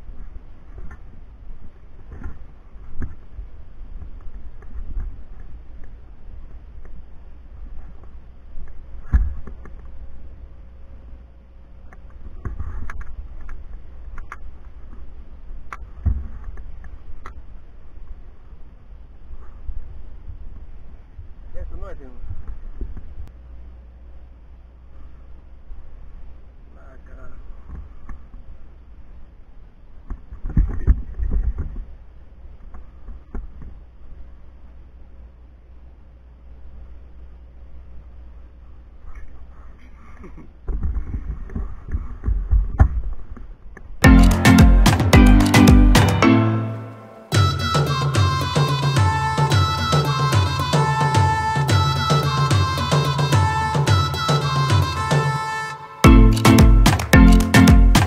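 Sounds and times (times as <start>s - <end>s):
sharp knock: 56.1s - 58.0s.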